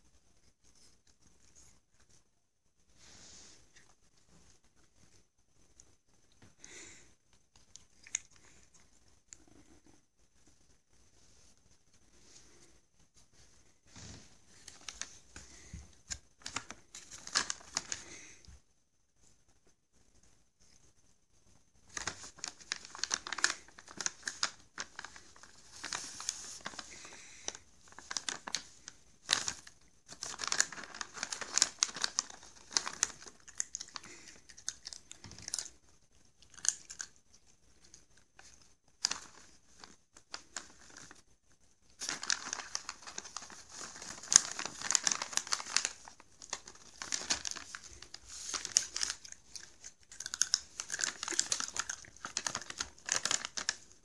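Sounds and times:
plastic pouch crinkling: 14.5 - 18.4, 21.9 - 35.8, 37.8 - 41.2, 41.9 - 54.0.

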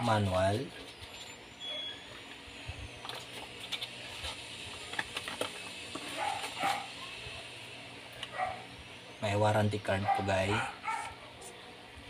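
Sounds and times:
paper rustling: 3.0 - 6.8.

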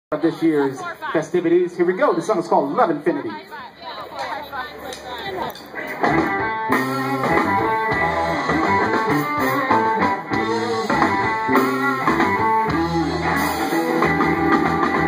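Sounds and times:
electric guitar: 5.4 - 15.0
low bass line: 6.0 - 15.0.

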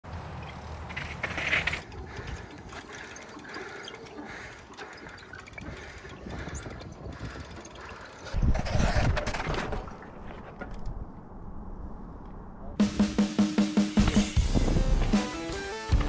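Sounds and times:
bike clicks and rattles: 0.1 - 11.2
bike tyres rolling over dirt and rock: 0.1 - 11.3.

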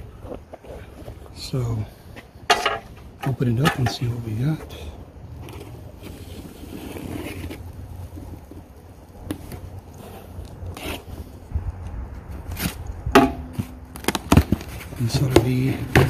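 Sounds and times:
packing tape being slit: 13.9 - 14.9.

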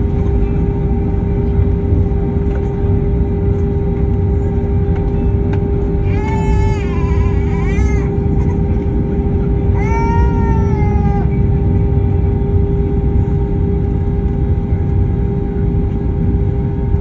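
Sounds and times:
aircraft engine rumble: 0.0 - 17.0.

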